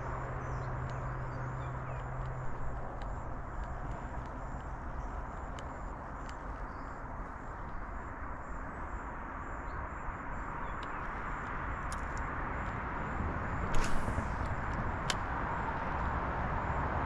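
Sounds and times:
faint clicks: 1.9s - 6.6s.

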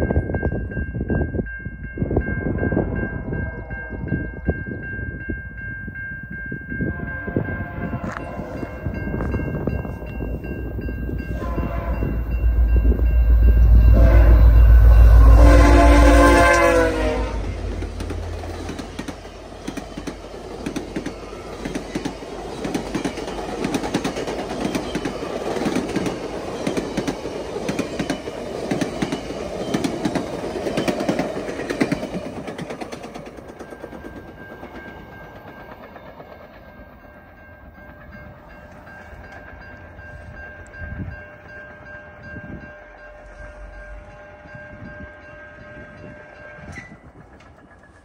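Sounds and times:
train horn: 6.8s - 8.8s, 11.2s - 18.4s, 42.1s - 47.1s
locomotive rumble: 6.9s - 48.0s
train wheels clickety-clack: 17.6s - 41.8s, 45.8s - 48.0s.

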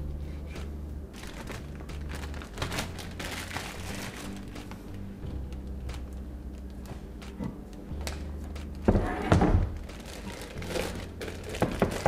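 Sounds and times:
plastic bag crinkling: 1.1s - 7.4s, 8.0s - 8.9s, 9.6s - 12.0s.

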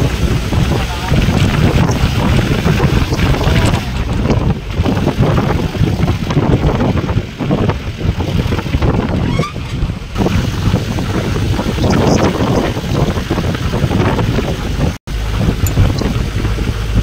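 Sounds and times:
road noise: 0.0s - 17.0s
vehicle engine: 0.0s - 17.0s
wind buffeting microphone: 0.0s - 17.0s.

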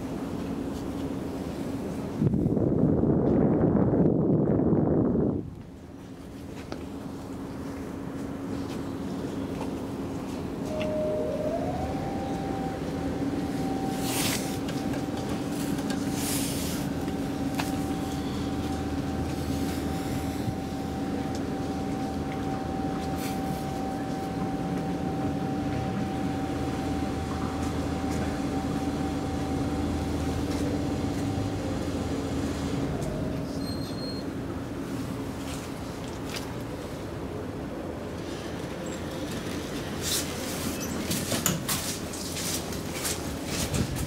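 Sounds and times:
steady low hum: 0.1s - 33.5s
elevator drive whine: 6.8s - 35.9s.

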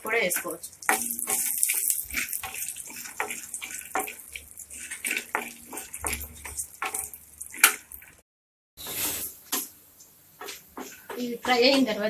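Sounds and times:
peanuts sizzling in hot oil: 0.0s - 8.2s
spatula scraping and clinking on pan: 0.0s - 8.2s.

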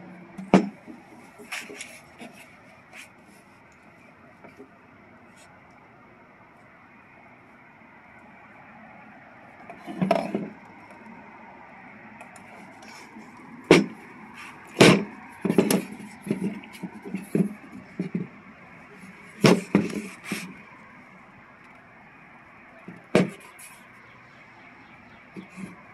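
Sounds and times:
plastic speaker cabinets clunking: 0.4s - 2.4s, 13.6s - 14.0s, 14.7s - 18.4s, 19.2s - 20.6s.

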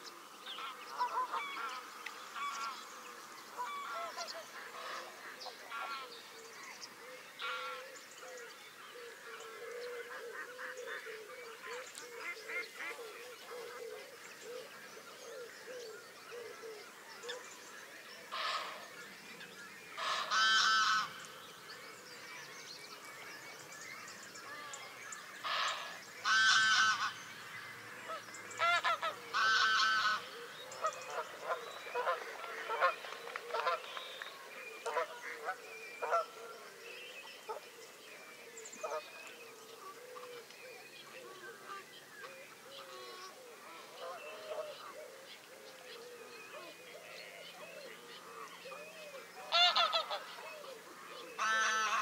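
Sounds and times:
faint waterbird calls: 0.0s - 52.0s
geese honking: 20.0s - 21.2s, 25.4s - 27.3s, 28.6s - 33.8s, 49.5s - 50.4s, 51.4s - 52.0s.

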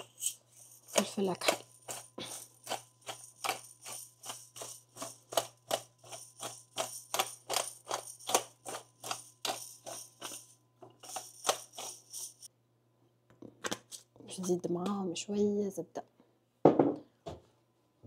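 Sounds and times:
pepper grinder rattling: 0.0s - 12.5s.

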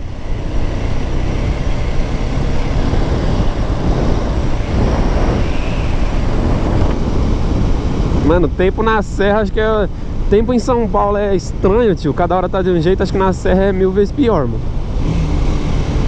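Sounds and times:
road noise: 0.0s - 16.0s
wind rush: 0.0s - 16.0s
motorcycle engine running: 14.6s - 16.0s.

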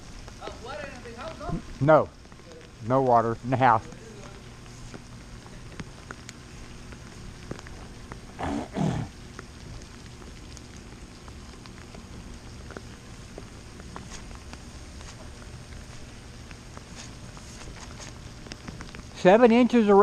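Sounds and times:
steady rain: 0.0s - 20.0s
drops ticking: 0.1s - 17.4s
voice-like grunt: 8.4s - 9.1s.

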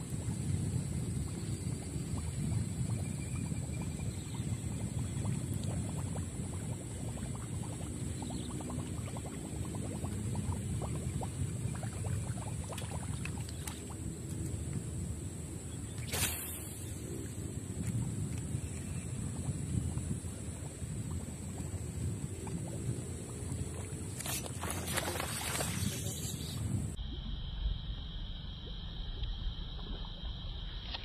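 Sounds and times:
small water sounds: 0.0s - 31.0s
wind rumbling on microphone: 0.0s - 31.0s
lure splashing into water: 15.9s - 17.1s, 24.1s - 26.6s.

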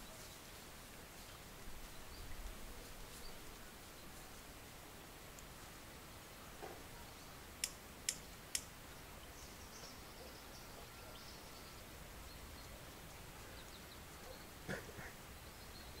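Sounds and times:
sharp clicks: 7.6s - 8.7s.

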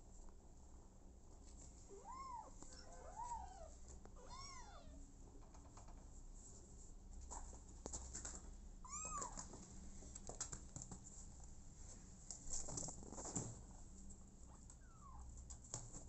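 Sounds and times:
soft rustling and scuffling: 0.1s - 4.3s, 6.0s - 16.0s
kitten meowing: 2.0s - 5.0s, 8.9s - 9.4s.

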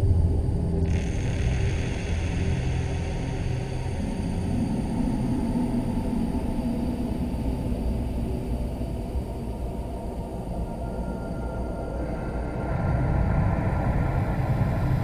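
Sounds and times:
low rumbling ambient drone: 0.0s - 15.0s.

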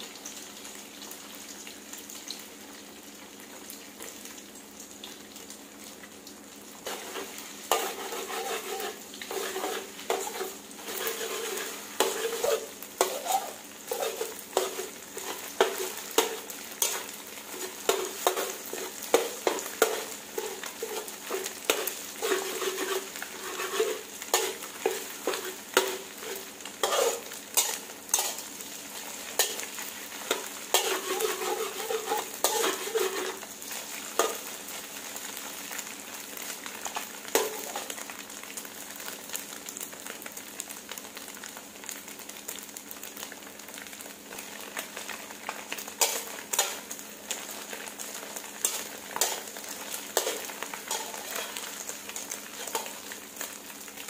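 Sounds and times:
eggs sizzling in oil: 0.0s - 54.0s
metal spatula scraping pan: 6.8s - 28.5s, 29.3s - 29.6s, 30.3s - 33.4s, 37.4s - 37.9s, 46.0s - 46.8s, 48.6s - 51.8s, 52.6s - 53.0s.

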